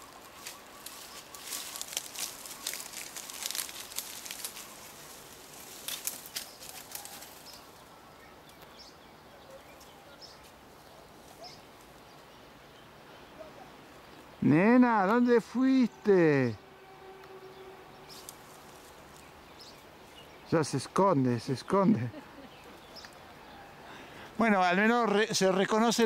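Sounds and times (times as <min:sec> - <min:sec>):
branches and undergrowth rustling: 0:00.0 - 0:26.0.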